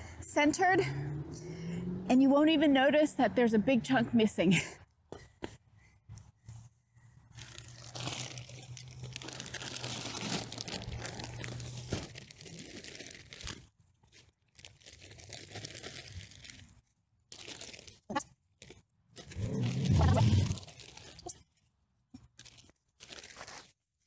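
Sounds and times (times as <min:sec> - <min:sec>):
plastic bag crinkling: 0:07.3 - 0:21.6, 0:22.2 - 0:23.8.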